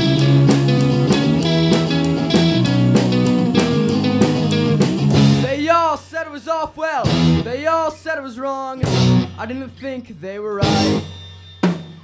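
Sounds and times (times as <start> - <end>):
guitar notes bending in pitch: 0.0 - 5.5, 7.0 - 7.6, 8.8 - 9.4, 10.6 - 11.8
rock band playing: 0.0 - 6.0, 7.0 - 7.9, 8.8 - 9.8, 10.6 - 12.0.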